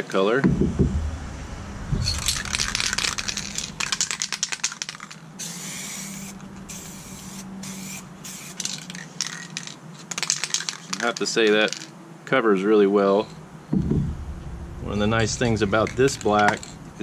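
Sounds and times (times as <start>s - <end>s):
spray paint hissing: 2.4s - 9.6s
spray can ball rattling: 2.4s - 11.9s.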